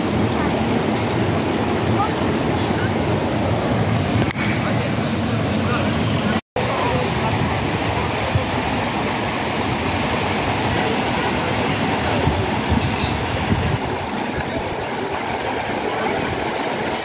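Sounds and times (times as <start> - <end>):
stream rushing over rocks: 0.0 - 17.0
wind rumble on microphone: 11.9 - 16.8.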